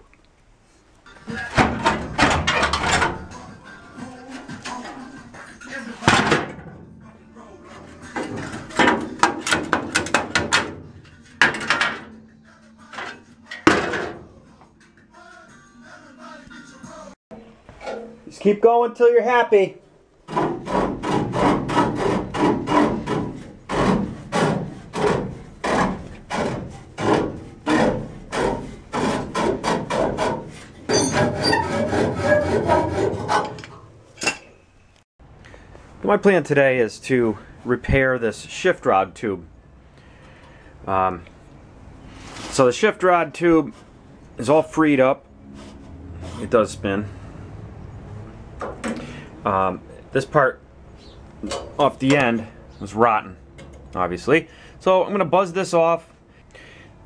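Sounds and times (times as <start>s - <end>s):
metal pieces clanking: 1.1s - 3.3s
hand tool rasping on metal: 20.3s - 33.7s.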